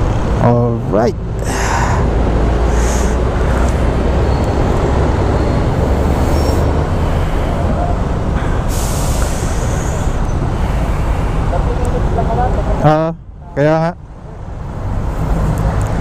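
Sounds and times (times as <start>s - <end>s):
scooter road noise: 1.2s - 12.8s.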